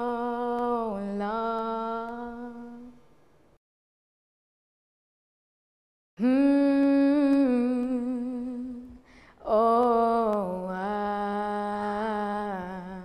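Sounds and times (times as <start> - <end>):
woman singing unaccompanied: 0.0 - 3.1, 6.2 - 13.0
woman breathing: 9.0 - 9.4.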